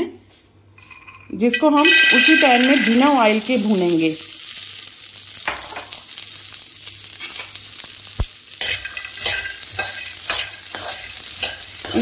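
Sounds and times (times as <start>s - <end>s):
chickpeas sizzling in pan: 1.5s - 12.0s
spatula scraping pan: 8.6s - 12.0s.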